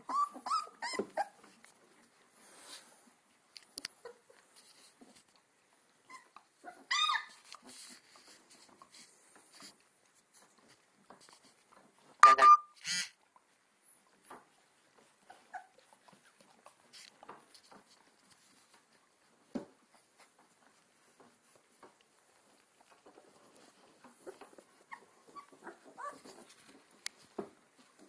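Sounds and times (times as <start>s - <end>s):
puppies whimpering: 0.0s - 1.5s, 6.1s - 7.4s, 15.0s - 16.4s.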